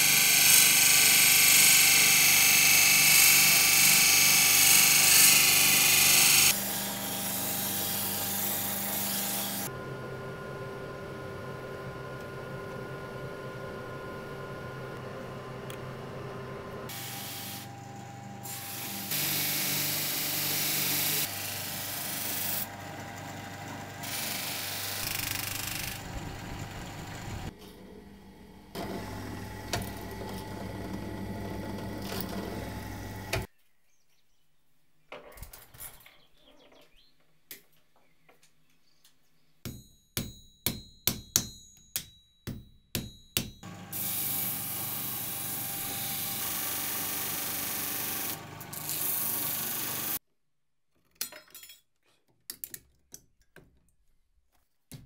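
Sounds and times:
drill press boring: 16.9s - 27.6s, 28.8s - 33.5s, 43.7s - 50.2s
grinding wheel running: 21.1s - 33.5s.

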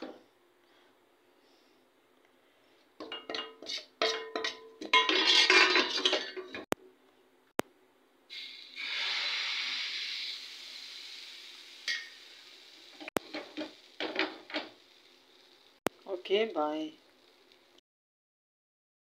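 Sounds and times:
metal cookware clattering: 3.0s - 6.7s, 13.2s - 14.7s
steady hiss: 8.3s - 17.8s.

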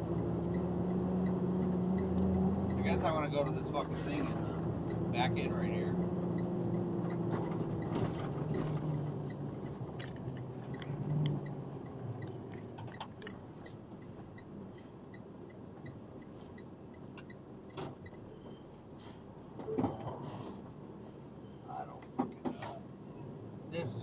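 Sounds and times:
steady ticking: 0.0s - 18.2s
truck engine and road noise: 0.0s - 24.0s.

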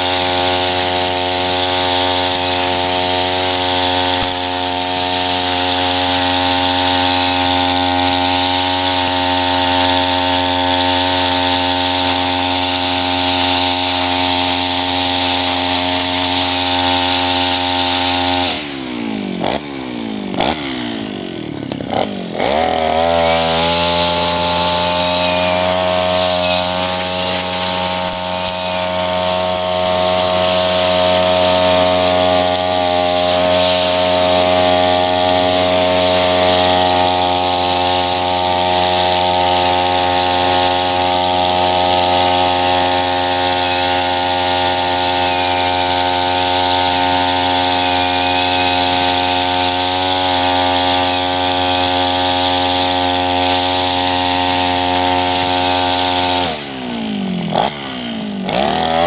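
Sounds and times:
brush cutter cutting grass: 0.0s - 59.0s.

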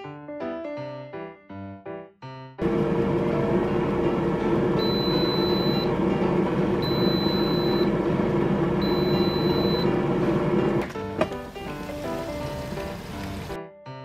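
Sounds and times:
air fryer beeping: 2.6s - 13.6s
air fryer fan running: 2.6s - 13.6s.

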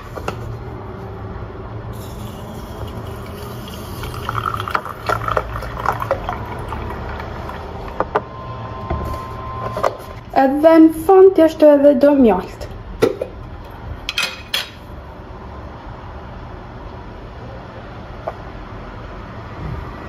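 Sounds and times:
milk pouring into a glass: 2.2s - 8.0s.

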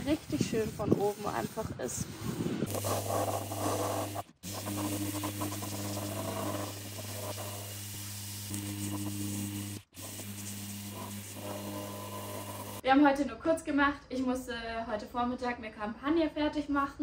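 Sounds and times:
orbital sander sanding wood: 0.0s - 12.8s.

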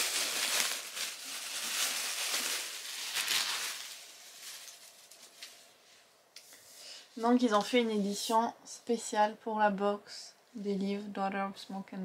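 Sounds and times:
packaging rustling and crinkling: 0.0s - 5.8s.

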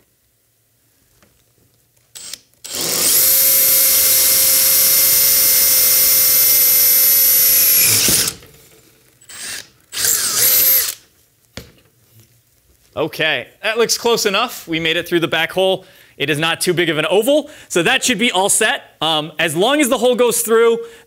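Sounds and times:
cordless drill whining: 2.2s - 8.4s, 9.3s - 11.0s.

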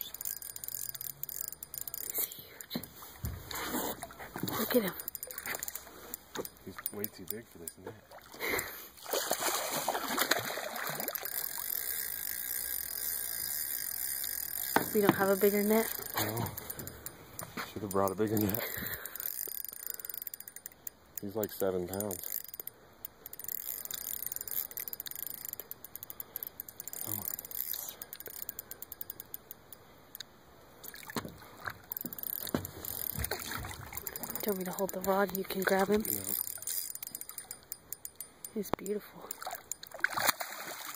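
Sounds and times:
fishing reel clicking: 0.0s - 3.0s, 4.6s - 7.8s, 11.0s - 30.3s, 31.8s - 40.0s
fish thrashing and splashing: 9.0s - 11.7s, 30.9s - 36.7s, 39.4s - 40.9s.

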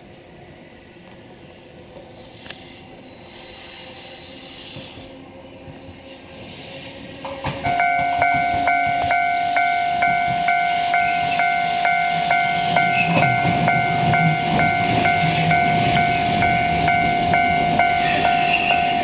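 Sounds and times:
tram brake hiss: 0.0s - 19.0s
tram rumbling: 0.0s - 19.0s
steady warning tone: 3.6s - 19.0s
railway crossing bell ringing: 7.6s - 19.0s.

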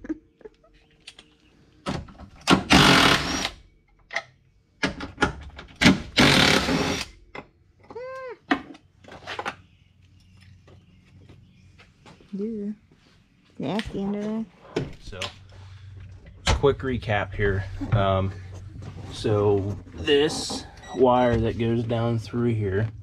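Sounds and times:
power tool bursts: 2.5s - 3.6s, 6.1s - 7.1s.

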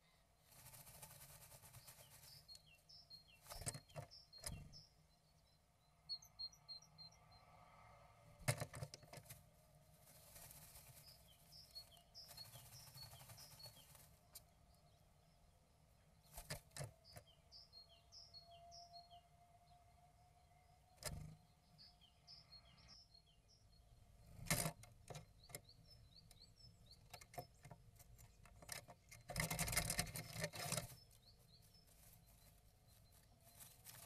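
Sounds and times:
bird rustling moss in a nestbox: 0.4s - 4.8s, 8.4s - 14.9s, 26.8s - 34.0s.

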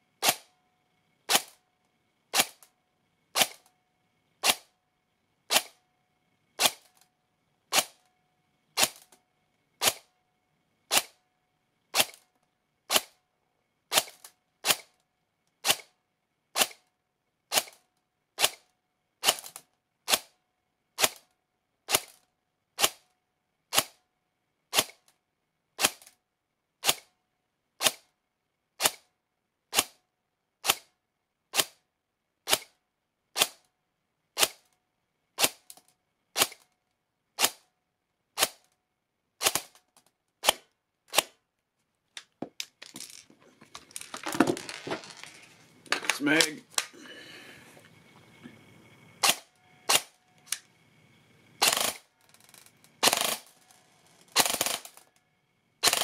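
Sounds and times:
airsoft gun shots: 0.2s - 0.5s, 1.3s - 1.6s, 2.3s - 2.6s, 3.4s - 3.7s, 4.4s - 4.7s, 5.5s - 5.8s, 6.6s - 6.9s, 7.7s - 8.0s, 9.8s - 10.1s, 10.9s - 11.2s, 12.0s - 12.2s, 15.6s - 15.9s, 16.6s - 16.8s, 24.7s - 25.0s, 27.8s - 28.0s, 28.8s - 29.0s, 32.5s - 32.7s, 40.4s - 41.4s, 49.2s - 50.1s, 53.0s - 53.5s.

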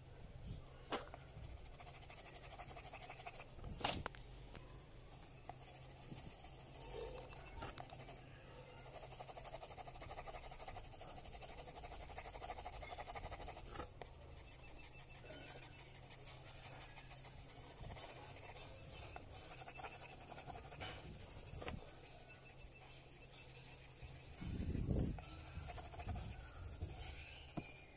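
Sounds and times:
pencil scratching on paper: 0.9s - 3.5s, 5.4s - 27.9s.

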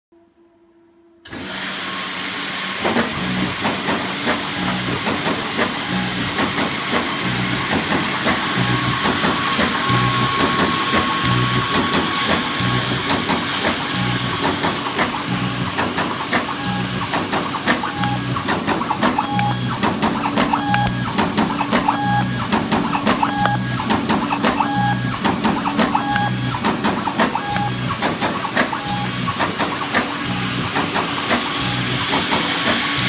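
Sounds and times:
machine thumps: 11.7s - 31.5s.

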